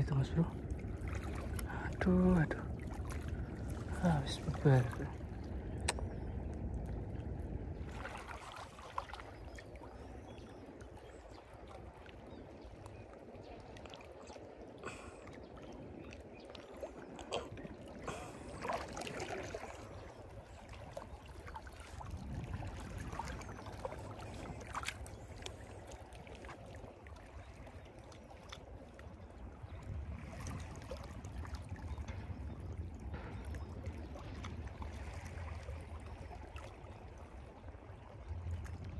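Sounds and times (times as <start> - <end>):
steady low rumble: 0.0 - 8.6
water lapping among rocks: 0.0 - 38.9.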